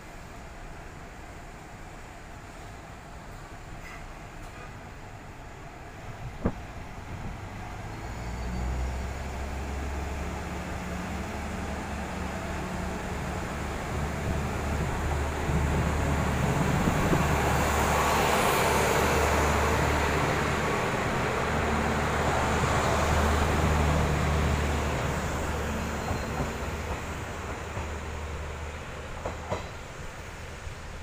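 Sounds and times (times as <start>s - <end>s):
diesel railcar passing: 0.0s - 31.0s.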